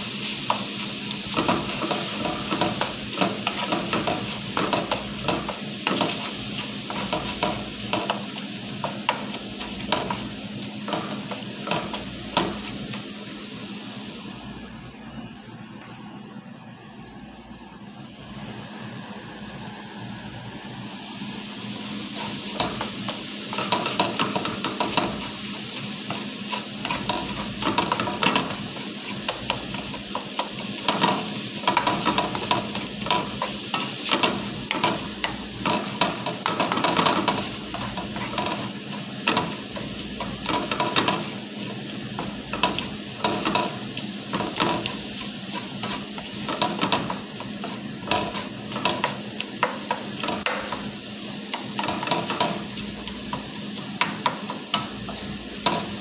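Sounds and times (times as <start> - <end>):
meat sizzling in a wok: 0.0 - 14.7, 18.1 - 56.0
spatula scraping and tapping pan: 0.4 - 13.0, 22.0 - 56.0.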